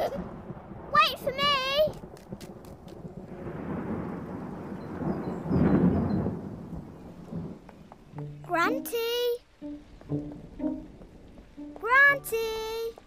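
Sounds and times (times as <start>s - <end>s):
thunder rumbling: 0.0s - 8.9s.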